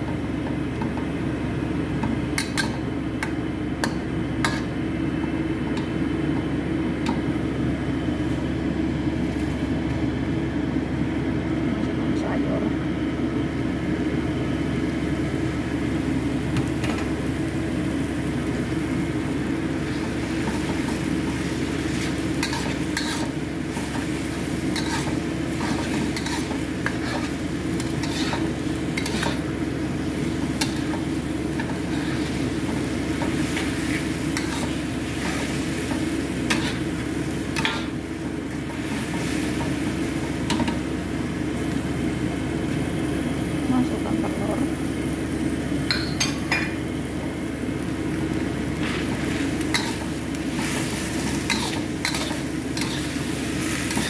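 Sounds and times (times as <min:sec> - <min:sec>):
steady low hum: 0:00.0 - 0:54.0
noodles sizzling in wok: 0:00.2 - 0:10.8, 0:13.5 - 0:54.0
spatula scraping wok: 0:19.7 - 0:40.9, 0:48.8 - 0:54.0.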